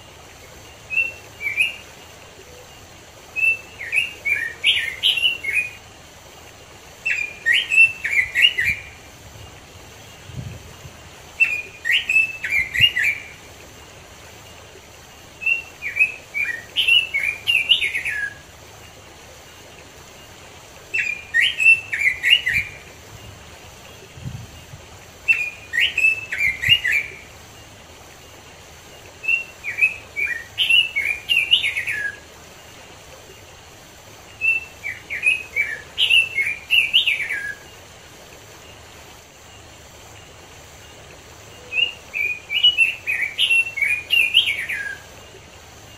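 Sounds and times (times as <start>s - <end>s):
small stream rushing: 0.0s - 45.9s
bird song phrases: 0.7s - 5.8s, 7.0s - 10.8s, 11.4s - 13.4s, 15.4s - 18.4s, 20.9s - 27.7s, 28.9s - 32.3s, 34.3s - 37.8s, 40.8s - 45.9s.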